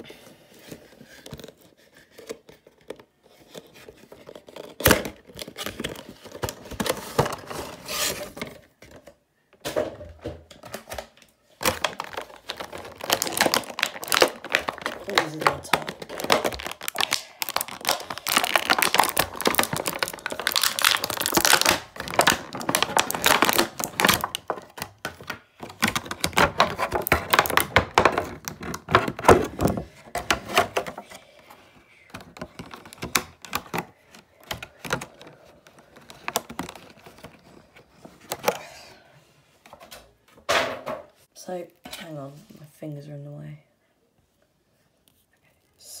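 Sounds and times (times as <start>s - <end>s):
plastic packaging crinkling: 11.6s - 31.0s, 32.2s - 38.5s.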